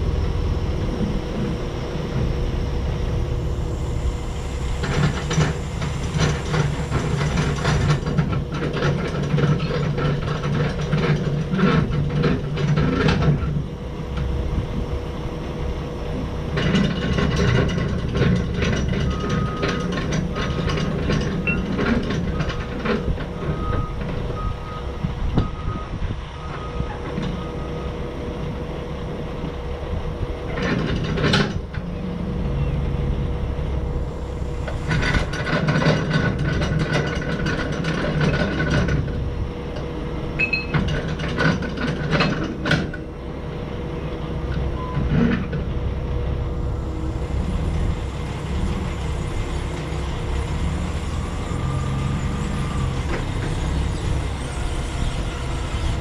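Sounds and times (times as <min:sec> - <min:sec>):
heavy machinery rumbling: 0:00.0 - 0:56.0
metal clanking and rattling: 0:04.8 - 0:13.6, 0:16.5 - 0:24.2, 0:34.0 - 0:43.1, 0:44.5 - 0:45.7
single-pitch beeps: 0:40.4 - 0:40.8.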